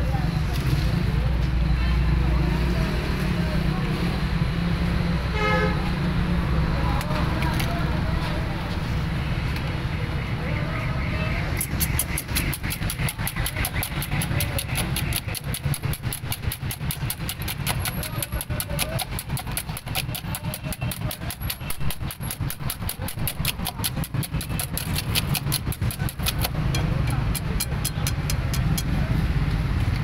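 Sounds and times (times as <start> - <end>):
eggs beaten in steel bowl: 11.6 - 29.0.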